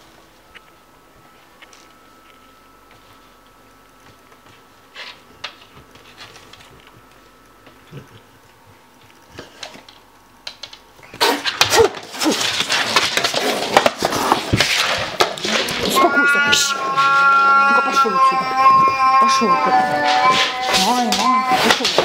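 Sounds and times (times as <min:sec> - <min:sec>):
cat hissing and yowling: 0:16.0 - 0:22.0.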